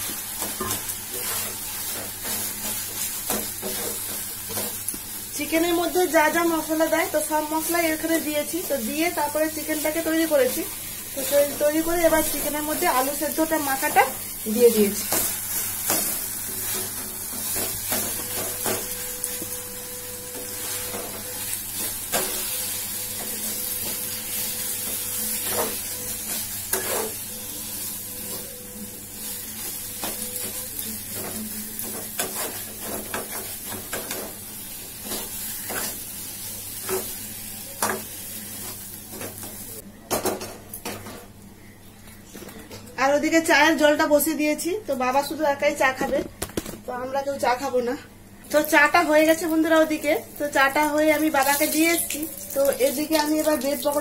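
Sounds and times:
food sizzling in a frying pan: 0.0 - 39.8, 48.4 - 54.0
spatula scraping a pan: 0.4 - 4.8, 20.4 - 27.3, 29.6 - 34.4.

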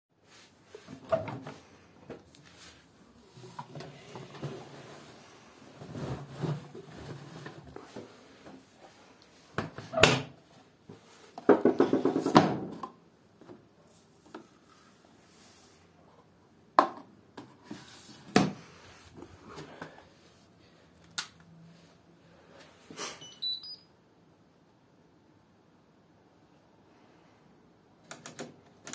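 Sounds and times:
short electronic beeps: 23.2 - 23.9.

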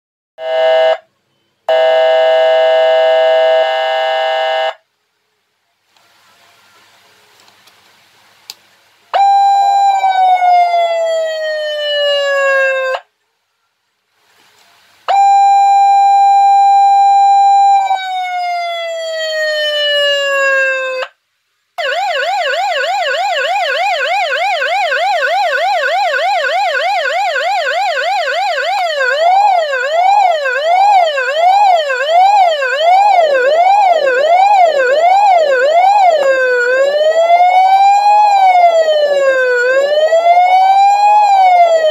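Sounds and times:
electronic siren cycling tones: 21.8 - 41.9.

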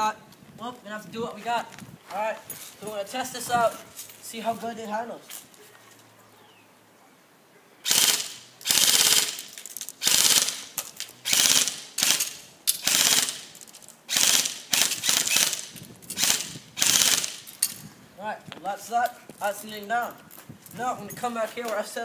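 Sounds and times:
airsoft gun full-auto bursts: 7.8 - 13.5, 14.1 - 17.5.

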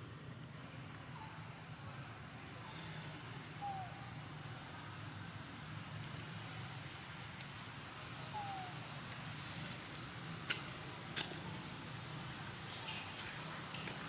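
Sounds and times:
insect drone: 0.0 - 14.0.

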